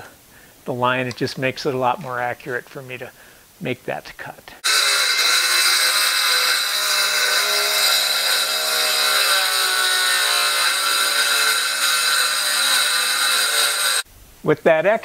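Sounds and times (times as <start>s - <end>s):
circular saw cutting wood: 4.6s - 14.1s.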